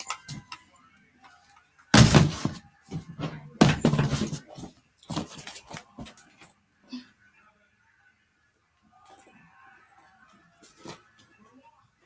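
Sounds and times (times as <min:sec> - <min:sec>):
loud handling thumps: 0:02.0 - 0:04.4.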